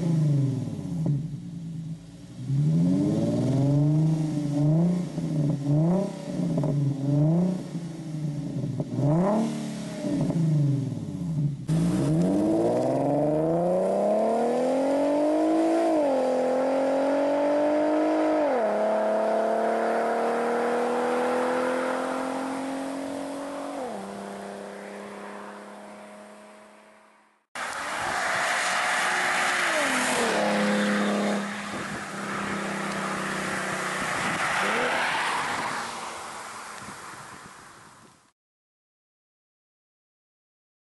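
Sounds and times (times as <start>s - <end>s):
car engine revving and accelerating: 2.4s - 36.8s.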